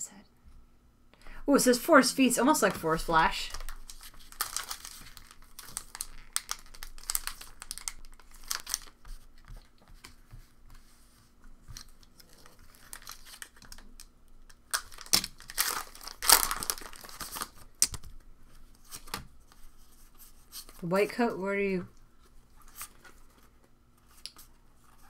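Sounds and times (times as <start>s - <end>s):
foil wrapper crinkling and tearing: 3.4s - 9.8s, 11.8s - 18.1s.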